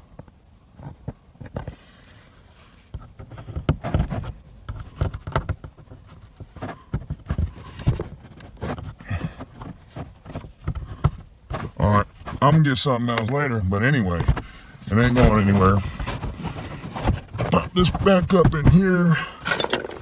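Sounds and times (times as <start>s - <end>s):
plastic trim clicks and rustling: 19.4s - 20.0s.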